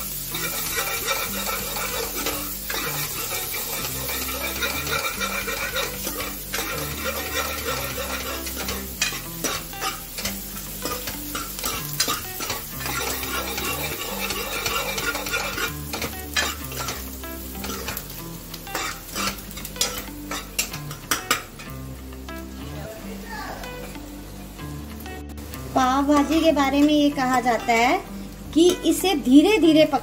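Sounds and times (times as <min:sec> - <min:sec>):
onions sizzling in pan: 0:00.0 - 0:30.0
metal ladle scraping pan: 0:00.2 - 0:18.1, 0:18.7 - 0:21.7.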